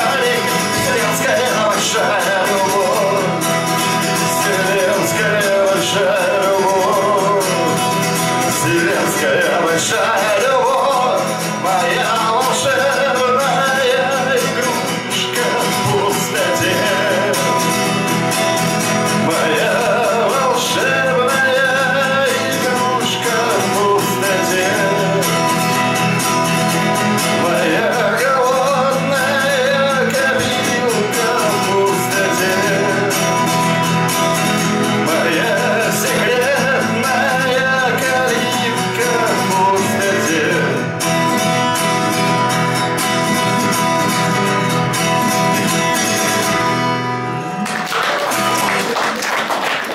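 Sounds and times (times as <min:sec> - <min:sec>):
man singing: 0:00.0 - 0:41.4
acoustic guitar strumming: 0:00.0 - 0:49.9.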